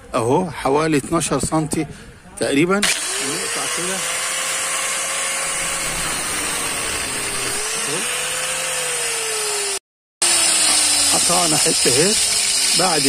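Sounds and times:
angle grinder cutting metal rod: 2.8s - 13.0s.

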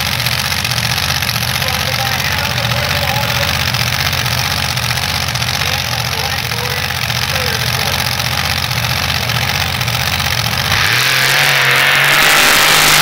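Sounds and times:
engine idling and revving: 0.0s - 13.0s
tires throwing dirt: 9.8s - 13.0s.

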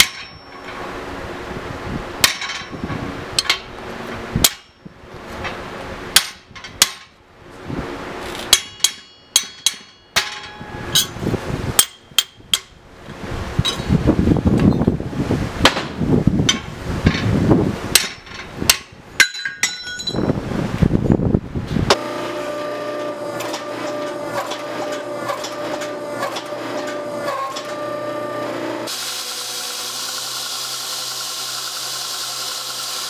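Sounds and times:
ringing metallic clinks: 0.0s - 0.8s, 19.2s - 20.4s
steel knocking and clanking: 0.0s - 1.0s, 2.2s - 7.2s, 8.4s - 11.2s, 11.8s - 12.8s, 15.6s - 20.4s
hydraulic press humming: 21.8s - 33.0s.

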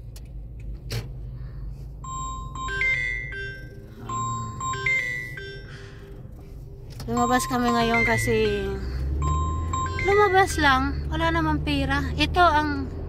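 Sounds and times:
car driving rumble: 0.0s - 13.0s
tinkling bell-like tune: 2.0s - 6.1s, 7.2s - 10.6s.

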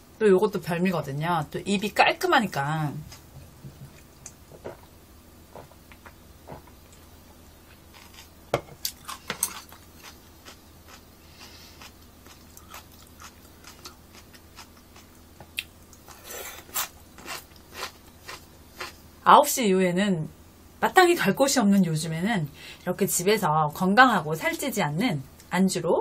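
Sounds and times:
person chewing crisp food: 6.5s - 19.0s.

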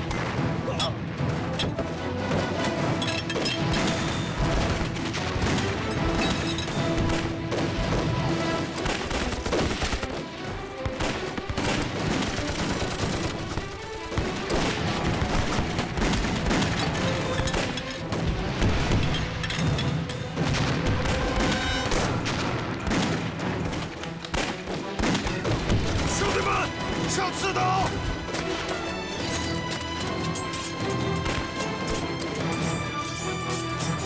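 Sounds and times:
background music score: 0.0s - 34.0s
gunfire volleys: 3.6s - 19.4s, 20.2s - 26.2s.

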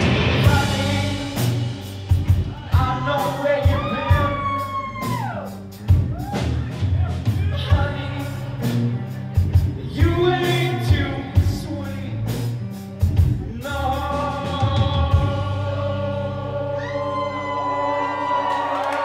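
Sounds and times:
electric guitar: 0.0s - 6.5s
person singing: 0.0s - 12.7s, 13.4s - 19.0s
drums: 0.0s - 19.0s.

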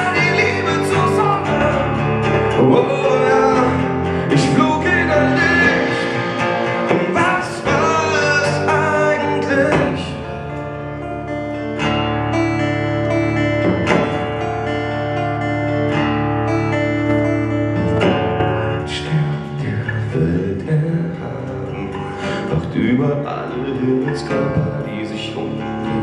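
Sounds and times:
man singing: 0.0s - 10.8s, 18.1s - 26.0s
acoustic guitar chords: 0.0s - 26.0s.

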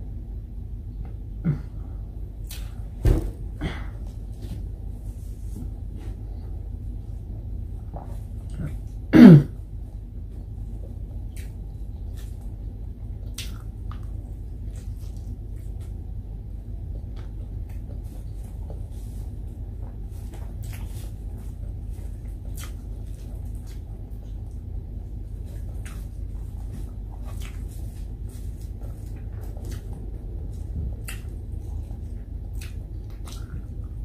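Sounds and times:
steady low hum: 0.0s - 34.0s
mouth smacks and chewing clicks: 11.3s - 12.6s, 13.2s - 16.0s, 22.5s - 24.0s, 28.5s - 34.0s.

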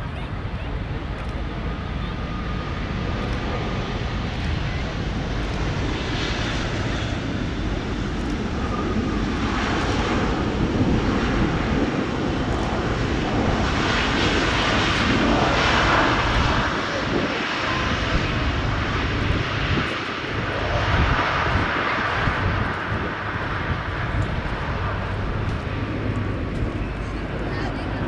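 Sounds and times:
jet engines in reverse thrust: 0.1s - 28.0s.

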